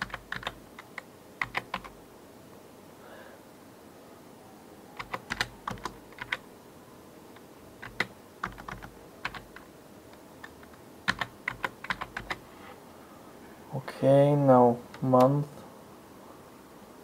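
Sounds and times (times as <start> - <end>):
keyboard typing: 0.0 - 2.0, 5.0 - 6.4, 7.4 - 12.4.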